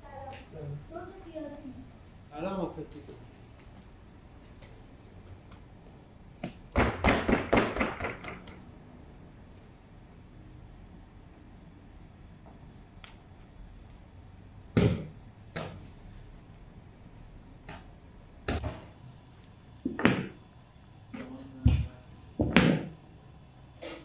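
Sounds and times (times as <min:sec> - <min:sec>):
dough thumping on work table: 0:06.4 - 0:08.6, 0:19.9 - 0:20.4, 0:21.2 - 0:23.0.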